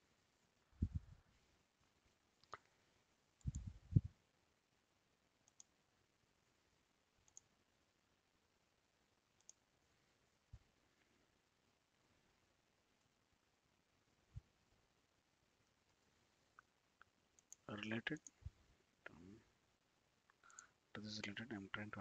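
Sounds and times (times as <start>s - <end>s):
computer mouse clicking: 5.4s - 5.8s, 7.2s - 7.5s, 9.4s - 9.6s, 17.0s - 18.4s, 20.3s - 20.7s.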